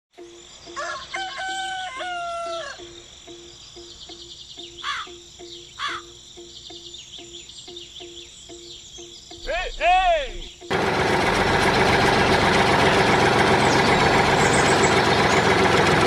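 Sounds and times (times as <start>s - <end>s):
high insect-like trilling: 0.2s - 10.7s
pulsing animal call: 0.7s - 3.0s, 12.1s - 16.0s
rooster crowing: 0.7s - 3.0s.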